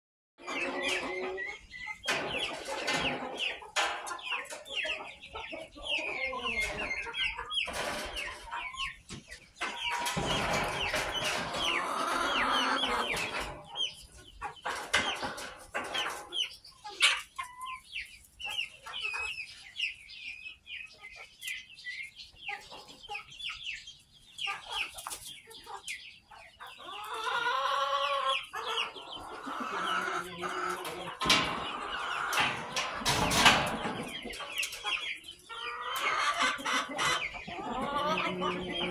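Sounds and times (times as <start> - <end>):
drawn-out chicken call: 0.4 - 9.0, 9.6 - 17.8, 26.7 - 38.9
high-pitched chicken calls: 0.4 - 21.8, 24.4 - 38.9
chickens clucking: 0.4 - 38.9.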